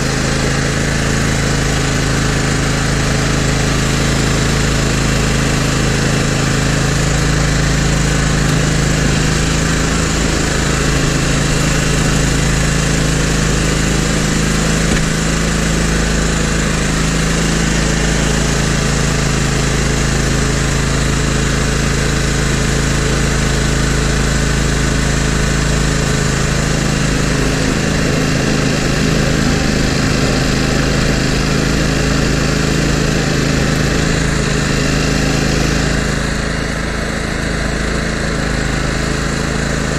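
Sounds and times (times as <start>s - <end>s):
mower engine running under load: 0.0s - 39.9s.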